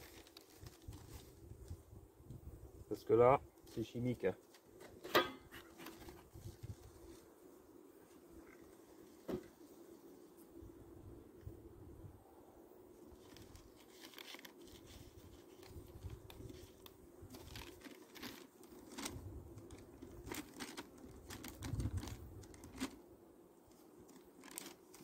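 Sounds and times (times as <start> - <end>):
paper crinkling and rustling: 0.0 - 1.4, 5.5 - 7.2, 13.1 - 23.0, 23.7 - 25.0
wind rumble on microphone: 0.8 - 2.9, 21.6 - 22.5.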